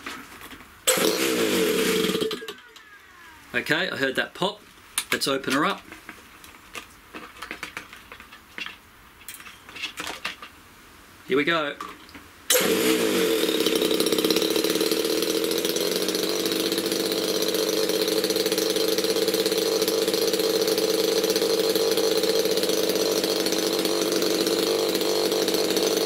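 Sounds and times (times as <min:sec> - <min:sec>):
model aircraft engine running: 0:00.9 - 0:03.6, 0:12.5 - 0:26.0.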